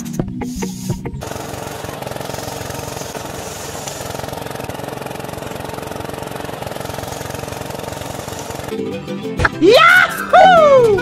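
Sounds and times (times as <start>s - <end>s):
small rice mill motor running: 1.2s - 8.8s.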